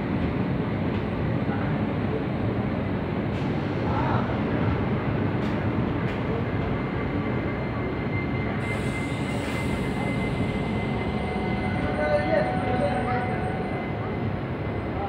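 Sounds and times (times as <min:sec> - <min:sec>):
train wheels rumbling on rail: 0:00.0 - 0:15.0
high squeal: 0:07.0 - 0:15.0.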